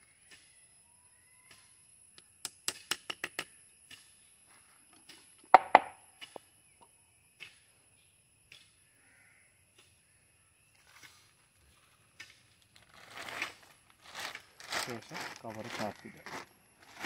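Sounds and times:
tapping knife clicks on bark: 1.4s - 4.1s, 8.5s - 8.8s
knife knocks on tree: 5.5s - 6.0s.

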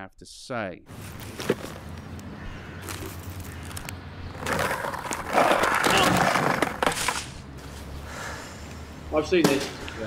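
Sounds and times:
skateboard wheels rolling on tarmac: 0.9s - 8.0s.

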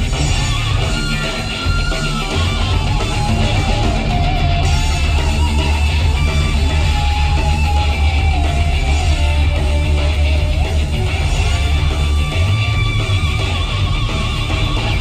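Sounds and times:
loud music with heavy bass: 0.0s - 15.0s.

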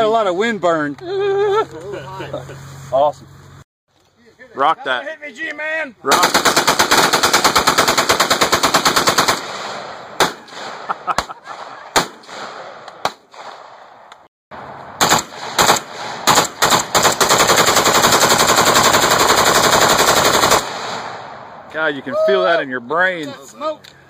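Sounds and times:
automatic rifle fire: 6.1s - 10.9s, 11.6s - 13.8s, 15.0s - 21.3s
single gunshots: 9.0s - 14.0s, 15.0s - 17.4s.

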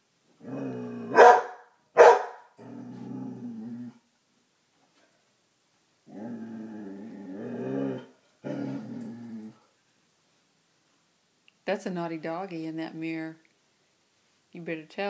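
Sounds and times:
dog growling low: 0.4s - 1.2s, 2.6s - 4.1s, 6.1s - 9.7s
dog barking: 1.1s - 2.5s.

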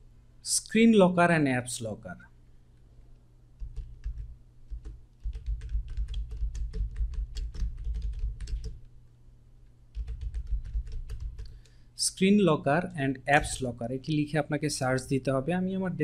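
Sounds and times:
computer keyboard typing: 3.6s - 8.8s, 9.9s - 11.7s.

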